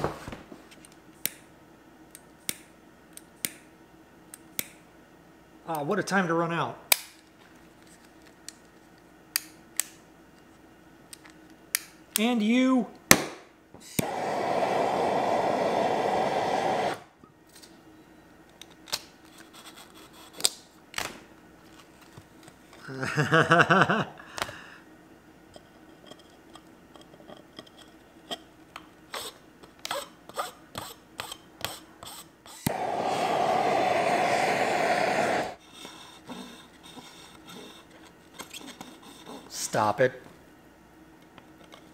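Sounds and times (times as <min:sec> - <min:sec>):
gas torch hissing: 0:13.8 - 0:17.2, 0:32.1 - 0:35.6.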